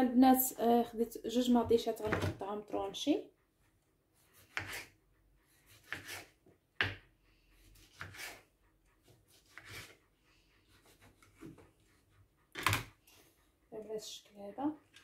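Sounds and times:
knife slicing tomatoes on board: 0:04.2 - 0:07.0, 0:07.7 - 0:10.0, 0:10.7 - 0:11.6.

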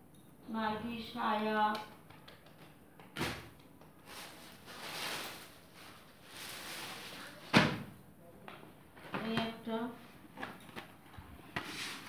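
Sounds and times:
plastic wrapping rustling: 0:03.2 - 0:07.6.

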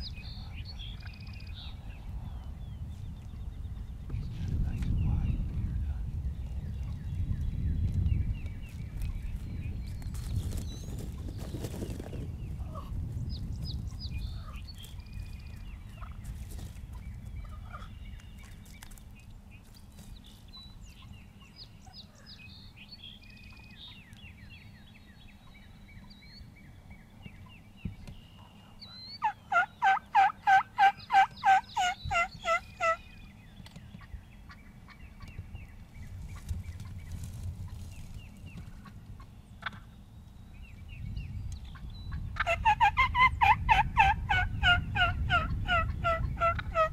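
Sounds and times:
turkey yelping: 0:29.2 - 0:33.0, 0:42.4 - 0:46.9.

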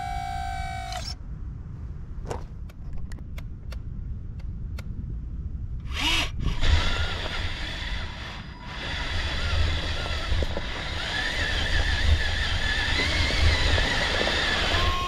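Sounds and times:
small motor whirring: 0:00.0 - 0:01.2, 0:05.8 - 0:15.0
rush of noise with whine: 0:00.0 - 0:15.0.

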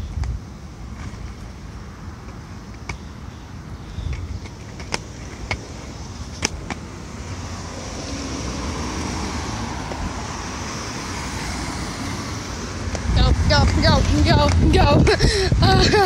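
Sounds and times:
car passing: 0:03.3 - 0:16.0.

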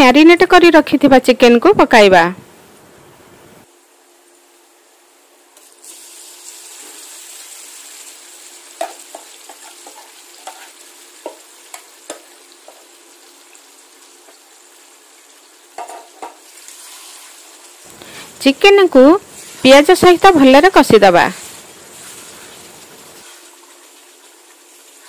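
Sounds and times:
chicken sizzling in hot oil: 0:05.6 - 0:25.0
spoon tapping and scraping pan: 0:08.8 - 0:12.8, 0:15.8 - 0:16.4.

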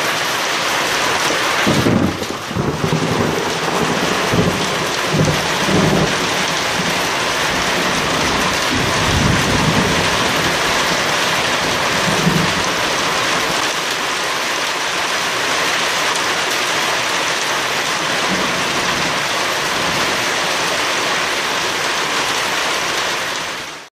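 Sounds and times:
heavy rain falling: 0:00.0 - 0:23.9
thunder rolling: 0:01.6 - 0:13.7, 0:17.9 - 0:20.8.

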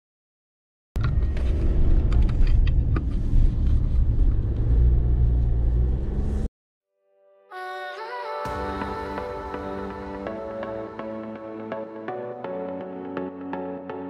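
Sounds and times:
wind and road noise: 0:01.0 - 0:06.5.

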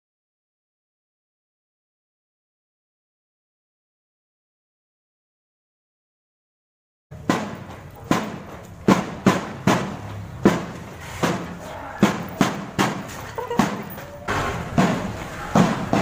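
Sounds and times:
marching drums beating: 0:07.1 - 0:16.0.

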